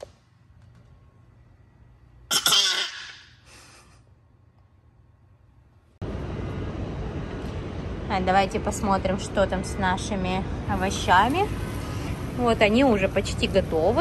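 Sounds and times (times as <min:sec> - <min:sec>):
person coughing: 0:02.3 - 0:03.2.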